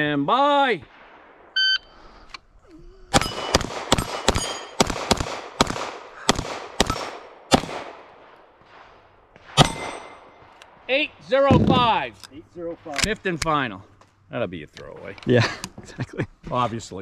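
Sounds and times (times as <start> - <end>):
gunshots: 3.1 - 12.0
metallic ring from steel plates: 4.4 - 4.8.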